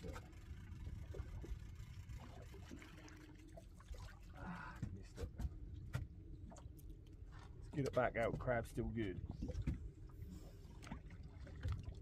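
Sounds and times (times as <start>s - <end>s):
water lapping against hull: 0.0s - 12.0s.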